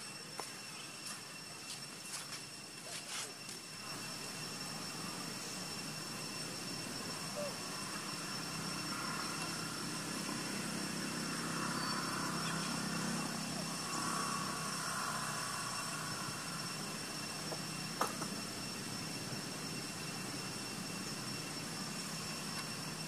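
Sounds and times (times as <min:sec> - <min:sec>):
distant engine: 0:00.0 - 0:23.0
outdoor background hum: 0:00.0 - 0:23.0.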